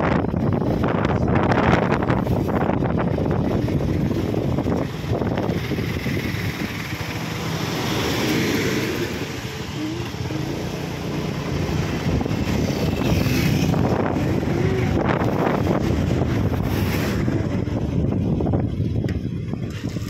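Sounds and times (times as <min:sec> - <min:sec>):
motorcycle engine and road noise: 0:00.0 - 0:20.0
wind rushing over microphone: 0:00.0 - 0:20.0.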